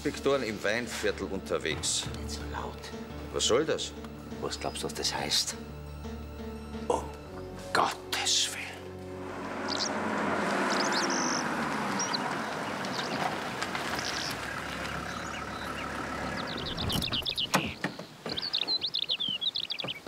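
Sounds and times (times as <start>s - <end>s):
birds chirping: 0.0s - 20.0s
vehicle running: 8.8s - 17.5s.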